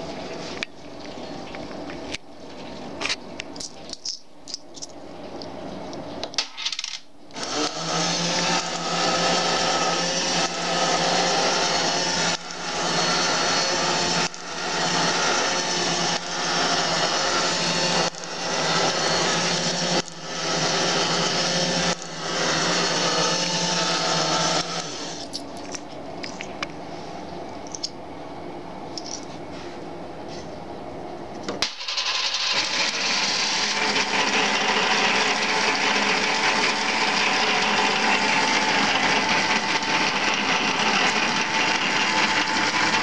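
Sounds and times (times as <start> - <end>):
small electric motor humming: 7.4 - 25.4, 31.6 - 43.0.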